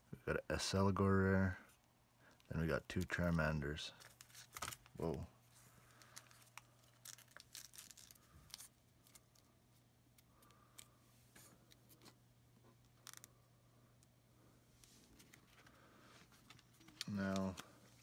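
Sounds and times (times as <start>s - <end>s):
low steady hum: 0.0s - 18.0s
trading cards clicking and rustling: 3.9s - 5.2s, 5.9s - 9.5s, 15.0s - 18.0s.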